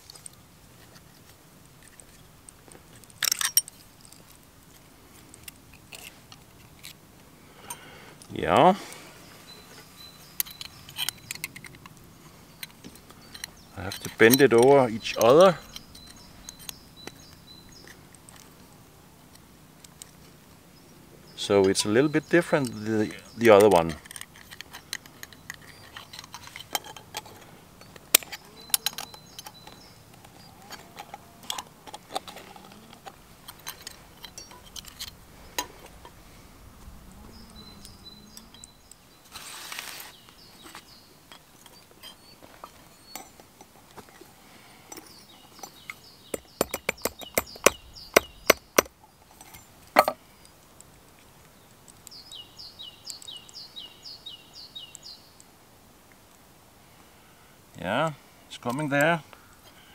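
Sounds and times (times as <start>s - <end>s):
bird chirping: 7.7s - 18.7s, 20.7s - 43.5s, 44.5s - 50.6s, 51.4s - 55.5s.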